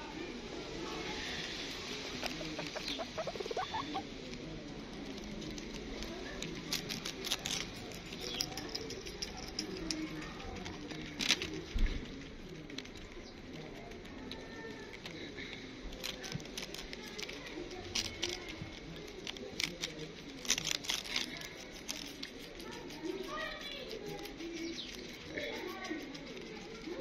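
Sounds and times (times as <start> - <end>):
hamster squeaking: 2.3 - 4.0
hamster scrabbling and rustling: 4.9 - 15.2, 15.9 - 27.0.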